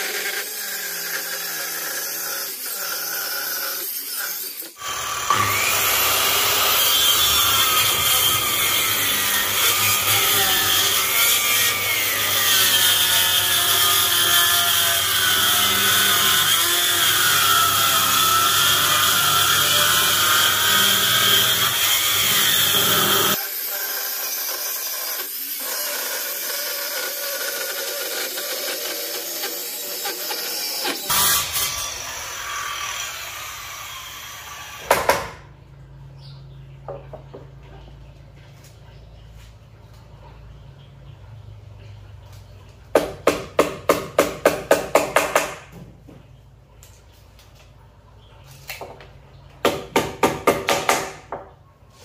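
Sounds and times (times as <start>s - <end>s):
power saw cutting wood: 0.0s - 35.5s.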